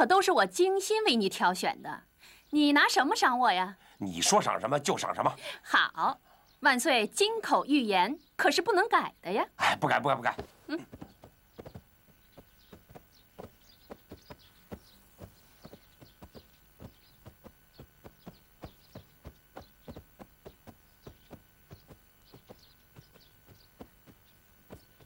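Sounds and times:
footsteps on stone paving: 10.1 - 25.0.

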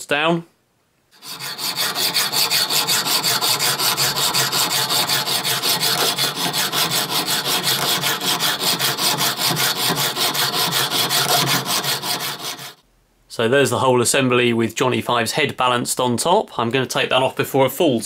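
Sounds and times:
hacksaw cutting metal bolt: 1.2 - 12.8.

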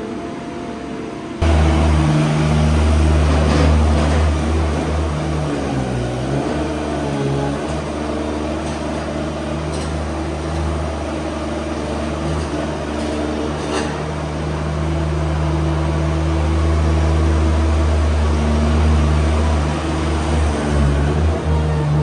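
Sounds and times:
machine humming: 1.4 - 7.8.

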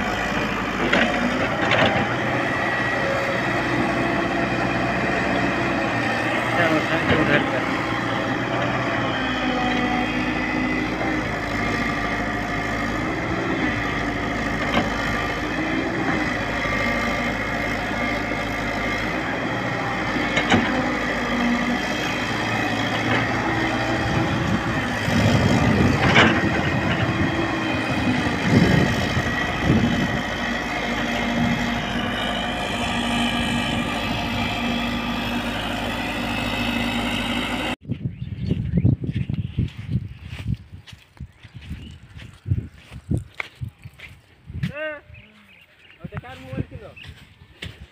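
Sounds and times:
excavator diesel engine running: 0.0 - 37.8.

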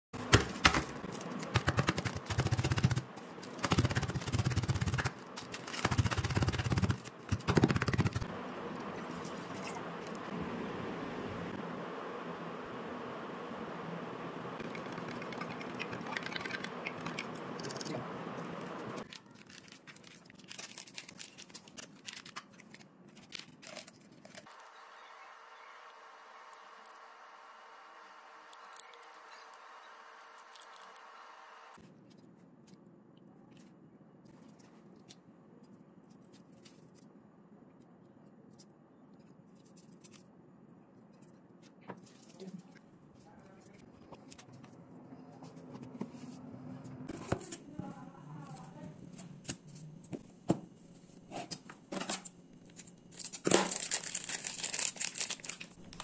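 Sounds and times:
low room hum: 0.2 - 56.0
plastic wrappers rustling: 19.0 - 24.6, 52.8 - 56.0.

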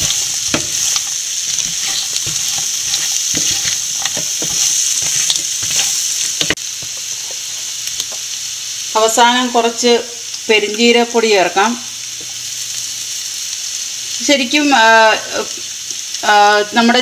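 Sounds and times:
crab and onion sizzling in pan: 0.0 - 17.0
wooden spatula scraping pan: 1.5 - 7.7.

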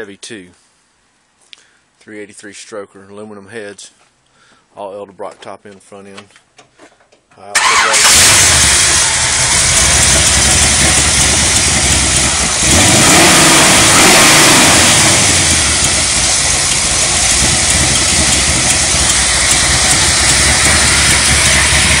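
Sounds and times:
car engine idling and revving: 7.6 - 22.0.

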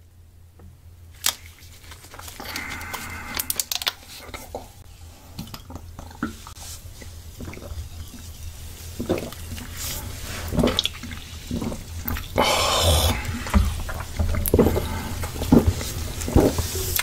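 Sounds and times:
person gulping: 9.0 - 9.4, 10.5 - 15.6
mouth sounds of eating: 11.6 - 14.0.

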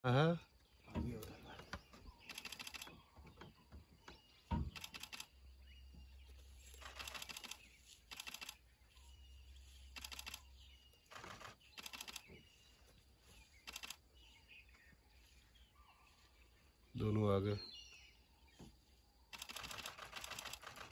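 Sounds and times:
camera shutter bursts: 2.3 - 2.9, 4.7 - 5.4, 6.7 - 8.6, 9.9 - 10.5, 11.1 - 12.3, 13.6 - 14.0, 19.4 - 20.9.

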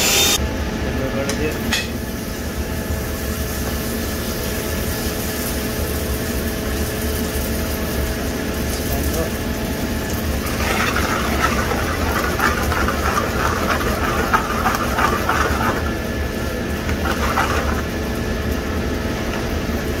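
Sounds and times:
metal ladle scraping a steel pan: 10.4 - 16.0.

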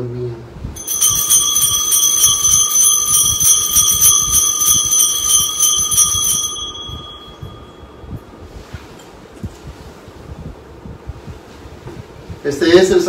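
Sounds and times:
altar bell ringing rapidly: 0.8 - 8.3.

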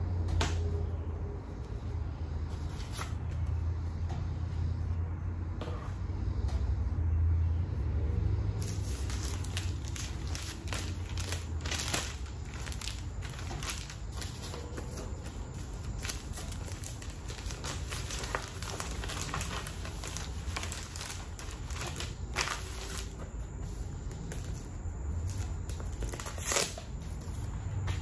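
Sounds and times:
plastic crinkling: 8.6 - 24.6, 25.2 - 28.0.

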